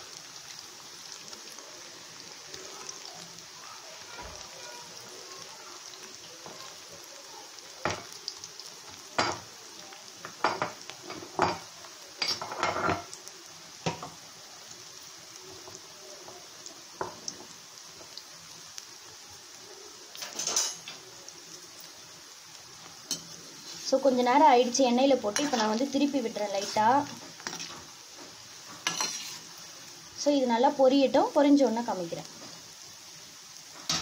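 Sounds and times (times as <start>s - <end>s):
batter sizzling in hot oil: 0.0s - 34.0s
metal kitchenware clinking: 20.2s - 21.0s.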